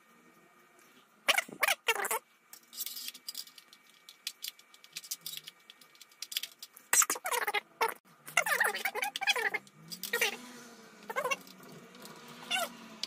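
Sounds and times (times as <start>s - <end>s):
screwdriver clicks and rattles: 2.6s - 6.8s.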